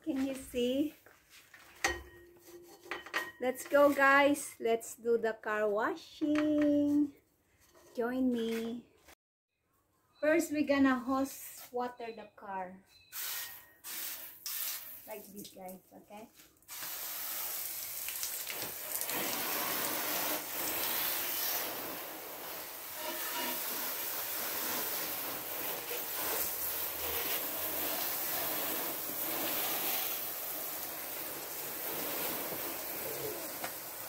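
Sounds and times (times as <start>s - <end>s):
hose spraying water on car: 16.7s - 34.0s.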